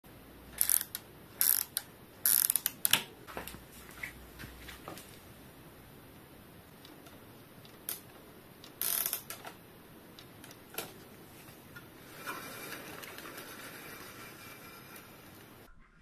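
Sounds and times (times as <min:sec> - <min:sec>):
bicycle wheel clicks and rattles: 0:00.6 - 0:03.0, 0:08.7 - 0:09.4.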